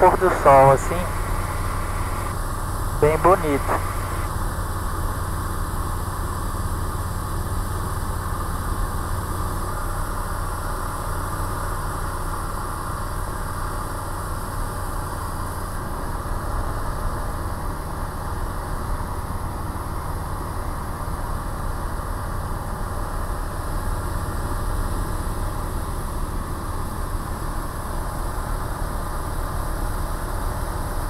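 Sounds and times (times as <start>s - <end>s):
light aircraft engine drone: 0.0s - 4.3s.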